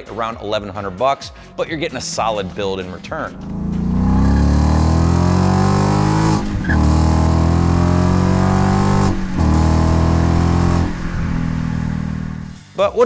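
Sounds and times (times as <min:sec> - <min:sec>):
car exhaust accelerating: 0:03.1 - 0:12.6.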